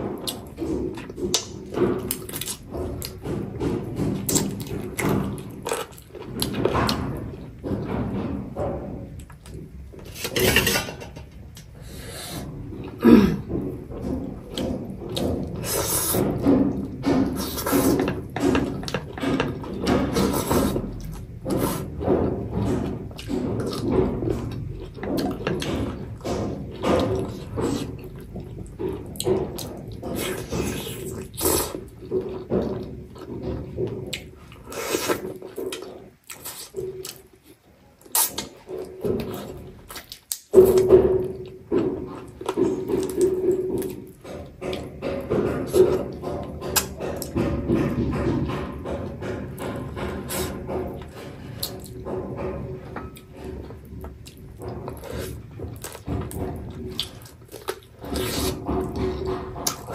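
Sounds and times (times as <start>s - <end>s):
chewing and lip-smacking: 0.2s - 3.5s, 14.1s - 47.4s, 49.0s - 59.9s.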